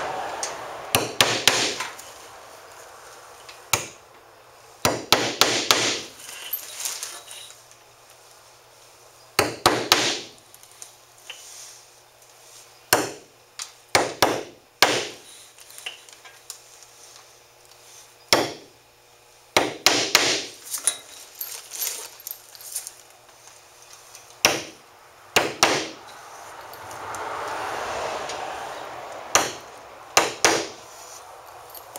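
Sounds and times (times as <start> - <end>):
hammer striking nails: 0.9 - 1.9, 3.7 - 4.0, 4.8 - 6.1, 9.4 - 10.4, 12.9 - 13.3, 13.9 - 15.2, 18.3 - 18.7, 19.6 - 20.6, 24.4 - 24.8, 25.4 - 26.0, 29.3 - 30.8.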